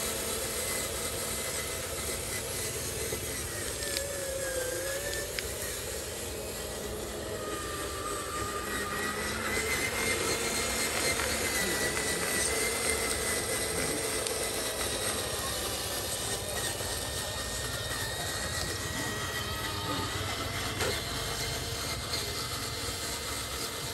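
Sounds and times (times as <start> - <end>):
electric motor whining: 0.0 - 23.9.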